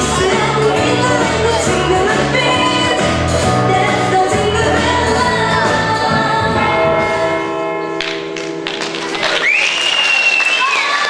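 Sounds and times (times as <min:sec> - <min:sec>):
pop dance song with singing: 0:00.0 - 0:07.6.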